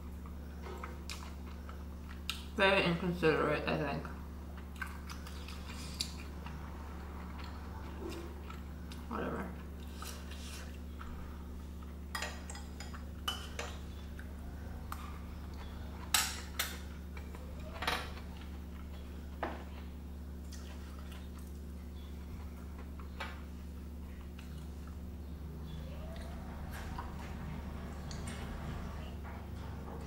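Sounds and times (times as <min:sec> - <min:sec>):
low hum: 0:00.0 - 0:30.0.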